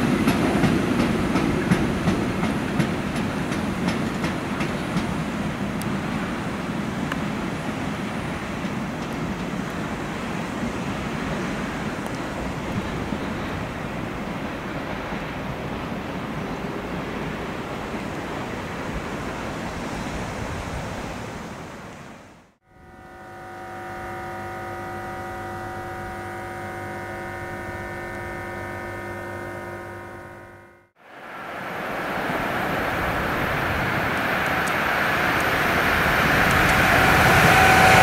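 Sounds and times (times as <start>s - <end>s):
train rushing and rumbling: 0.0s - 21.3s, 31.1s - 38.0s
train humming held tones: 8.2s - 16.6s, 22.6s - 38.0s.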